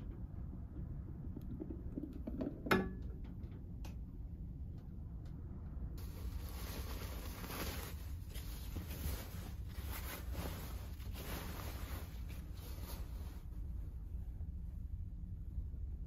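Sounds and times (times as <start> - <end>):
low engine hum: 0.0 - 16.0
bedding rustling: 6.0 - 14.2.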